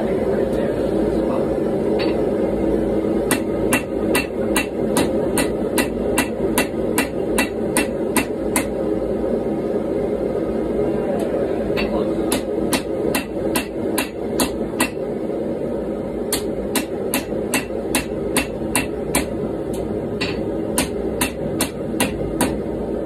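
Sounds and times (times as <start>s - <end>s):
gas forge drone: 0.0s - 23.0s
hammer striking metal on anvil: 2.0s - 2.2s, 3.3s - 8.8s, 11.8s - 15.1s, 16.3s - 19.4s, 20.2s - 22.6s.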